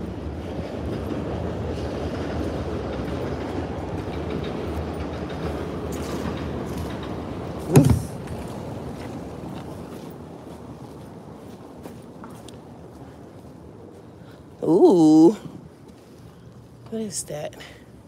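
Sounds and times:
loud thump: 7.7 - 8.2.

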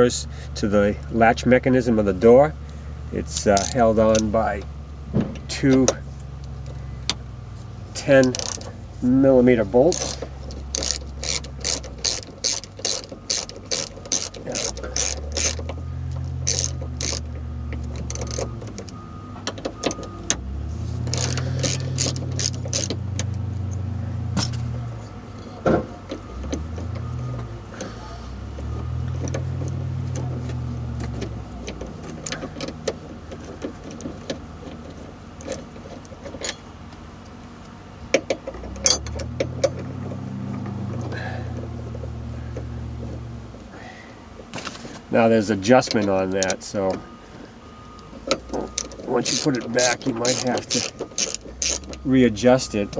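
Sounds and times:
socket ratchet clicking: 8.2 - 8.7, 9.9 - 20.4, 21.0 - 23.8, 48.3 - 52.0.

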